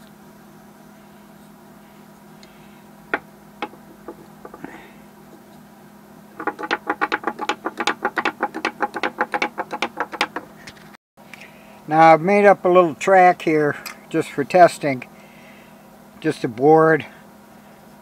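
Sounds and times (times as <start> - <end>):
wooden toy clicking on board: 3.2 - 4.7, 6.4 - 10.8
wooden toy taps: 3.2 - 5.4, 6.4 - 10.7.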